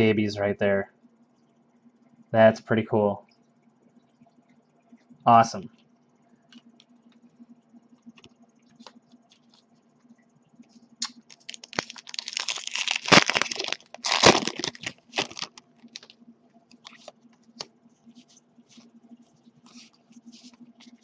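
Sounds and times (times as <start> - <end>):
foil wrapper crinkling and tearing: 11.0 - 16.2.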